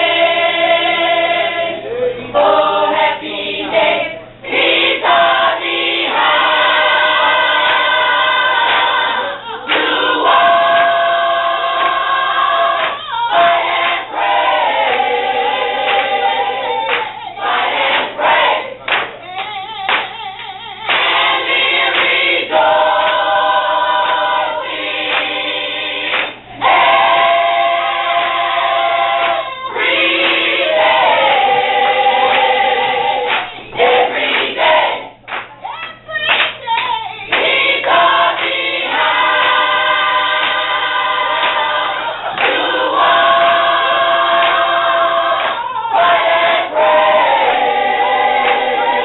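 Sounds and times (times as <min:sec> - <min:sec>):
choir singing in harmony: 0:00.0 - 0:19.0, 0:20.8 - 0:35.2, 0:37.3 - 0:49.0.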